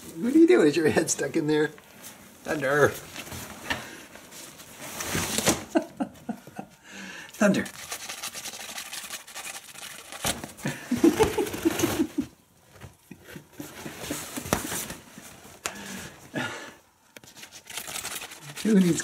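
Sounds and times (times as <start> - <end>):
nylon fabric rustling: 0.0 - 5.6.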